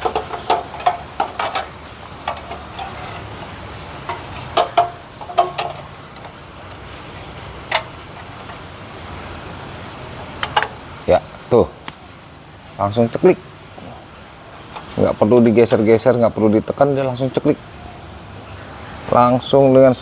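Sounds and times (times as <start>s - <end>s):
metal clicks of gas canister: 0.0s - 3.0s, 7.7s - 7.9s, 10.4s - 11.0s.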